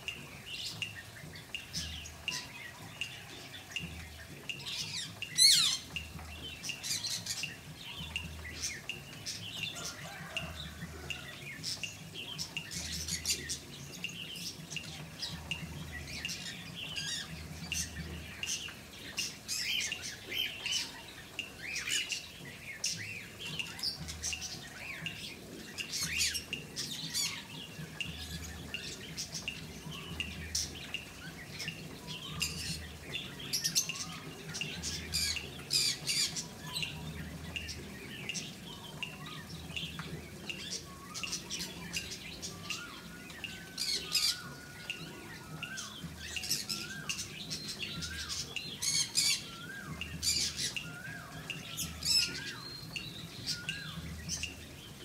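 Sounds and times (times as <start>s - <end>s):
birds chirping and squawking: 0.0s - 55.0s
rising whistled bird notes: 38.3s - 54.6s.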